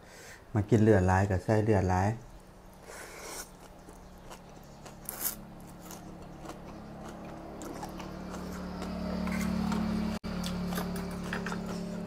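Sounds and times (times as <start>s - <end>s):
steady low hum: 0.0s - 12.0s
wet chewing clicks: 2.8s - 12.0s.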